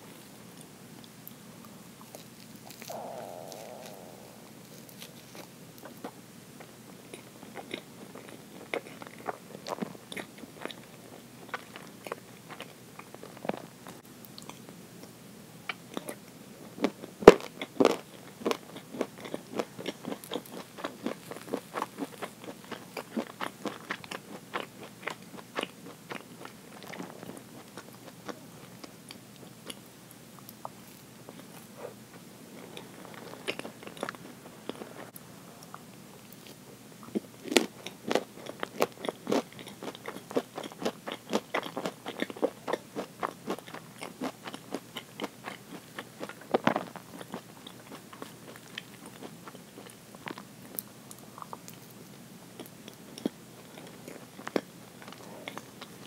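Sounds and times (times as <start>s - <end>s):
soft crunches of chewing: 0.0s - 56.0s
wet mouth clicks while chewing: 2.1s - 4.3s.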